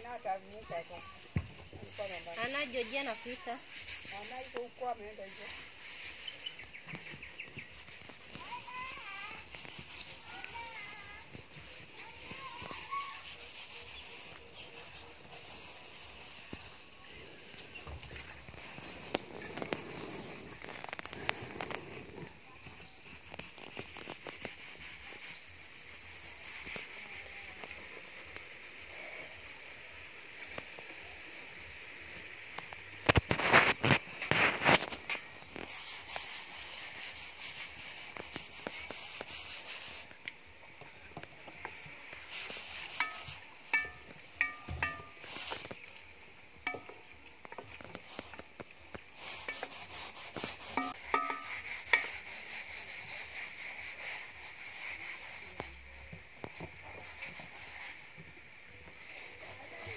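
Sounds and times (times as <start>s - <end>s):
faint steady hiss: 0.0s - 59.9s
steady sizzle: 0.0s - 59.9s
wooden spoon knocking metal pot: 43.0s - 45.4s, 46.7s - 47.1s, 50.7s - 52.1s.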